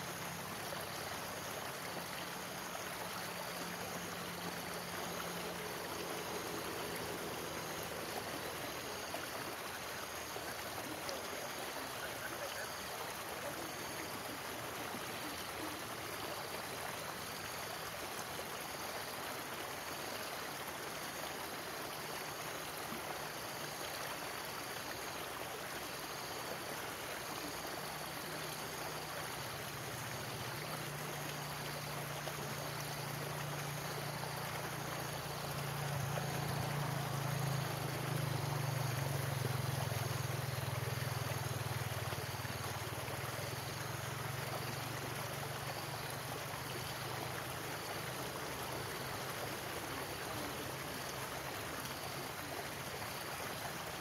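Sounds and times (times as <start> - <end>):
stream water rushing over rocks: 0.0 - 54.0.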